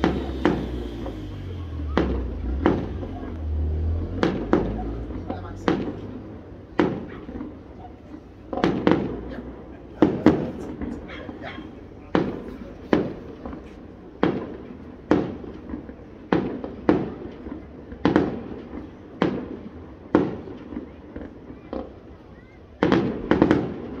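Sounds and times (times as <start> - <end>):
firework shells bursting with echo: 0.0 - 22.0.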